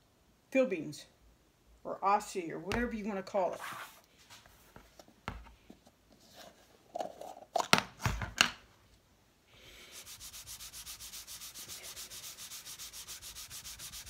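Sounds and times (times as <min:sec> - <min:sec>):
pad rubbing on leather: 0:09.9 - 0:14.0.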